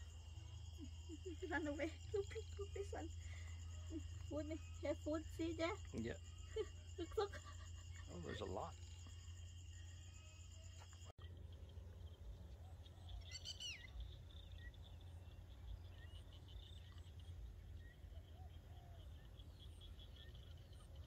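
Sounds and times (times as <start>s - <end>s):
fast-pulsing chirr: 3.0s - 10.7s
bird calls: 10.6s - 21.0s.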